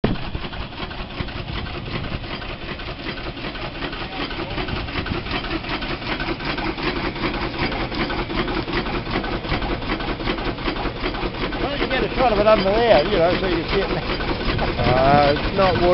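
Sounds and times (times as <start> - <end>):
steam traction engine running: 0.0 - 15.9.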